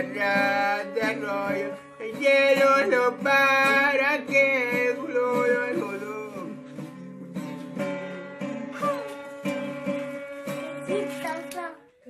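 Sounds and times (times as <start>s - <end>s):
man singing: 0.0s - 9.1s
acoustic guitar strumming: 0.0s - 12.0s.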